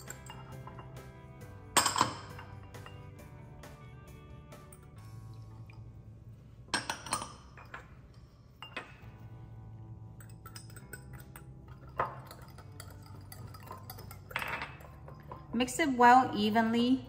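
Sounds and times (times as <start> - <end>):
whisk clinking glass bowl: 0.0 - 1.0, 10.2 - 15.4
soft background music: 0.0 - 17.0.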